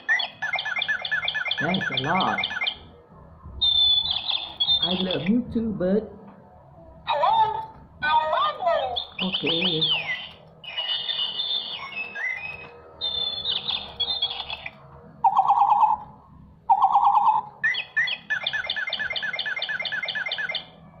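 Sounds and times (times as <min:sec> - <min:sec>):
electronic toy birdsong chirps: 0:00.0 - 0:02.9, 0:03.6 - 0:05.3, 0:08.1 - 0:20.8
buzzy trills: 0:08.0 - 0:21.0.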